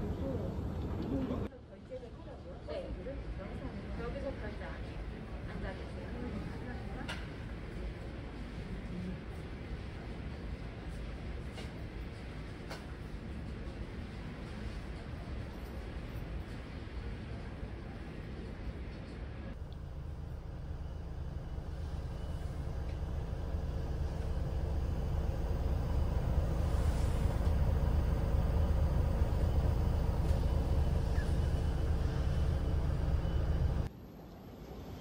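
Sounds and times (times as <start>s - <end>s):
coach engine rumble: 4.8s - 33.9s
road noise: 9.6s - 35.0s.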